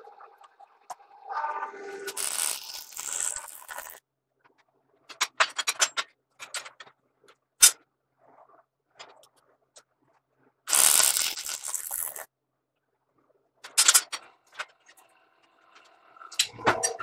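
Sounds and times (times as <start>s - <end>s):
arc welding crackling: 2.1s - 4.0s, 10.7s - 12.3s.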